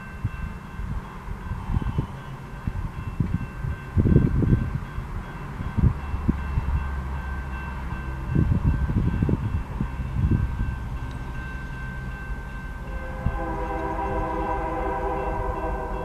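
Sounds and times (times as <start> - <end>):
crossing bell ringing: 0.0 - 16.0
low rumbles: 5.7 - 16.0
train horn: 12.8 - 16.0.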